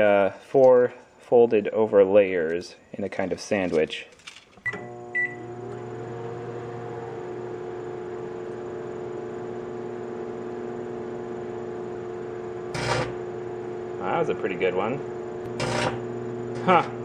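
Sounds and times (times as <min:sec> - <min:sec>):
microwave beep: 0:04.6 - 0:08.9
microwave humming: 0:04.6 - 0:17.0.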